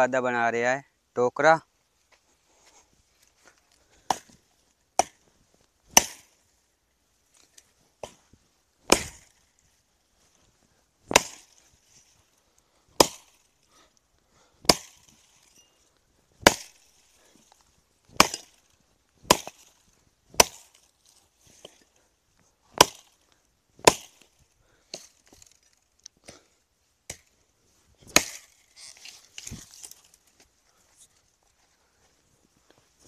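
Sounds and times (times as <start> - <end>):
axe chopping wood: 4.0 - 4.4, 5.0 - 5.2, 5.9 - 6.4, 8.8 - 9.4, 11.1 - 11.7, 13.0 - 13.5, 14.6 - 15.4, 16.4 - 17.4, 18.1 - 20.9, 22.7 - 25.5, 27.1 - 27.3, 28.0 - 30.0.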